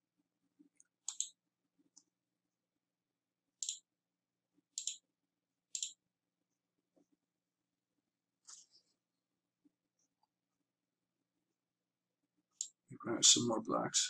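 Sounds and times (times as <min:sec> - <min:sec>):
computer mouse button clicking: 0:01.1 - 0:01.4, 0:03.6 - 0:03.8, 0:04.8 - 0:05.0, 0:05.8 - 0:06.0.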